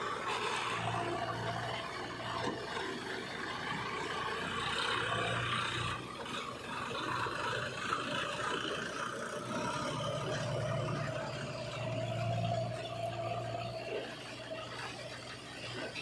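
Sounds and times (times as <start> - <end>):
backhoe loader engine running: 0.0 - 16.0
tractor diesel engine running: 0.0 - 16.0.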